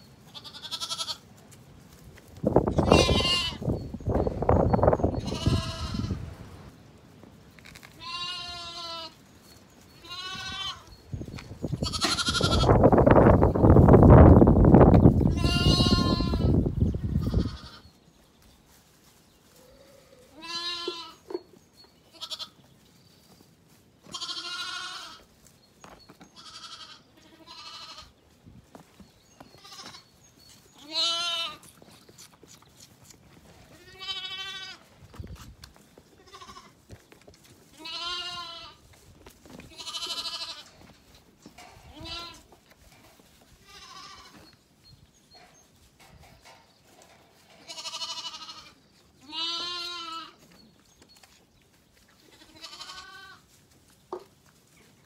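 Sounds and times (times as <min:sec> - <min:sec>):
lambs bleating: 0:00.3 - 0:01.2, 0:02.7 - 0:03.8, 0:05.1 - 0:06.4, 0:07.9 - 0:09.2, 0:10.0 - 0:11.0, 0:11.7 - 0:12.8, 0:15.3 - 0:17.9, 0:19.6 - 0:21.2, 0:22.1 - 0:22.6, 0:24.1 - 0:25.3, 0:26.4 - 0:28.1, 0:29.6 - 0:30.1, 0:30.8 - 0:31.7, 0:33.7 - 0:34.8, 0:36.2 - 0:36.8, 0:37.7 - 0:38.8, 0:39.6 - 0:40.9, 0:41.8 - 0:42.5, 0:43.6 - 0:44.5, 0:47.6 - 0:50.4, 0:52.2 - 0:53.4.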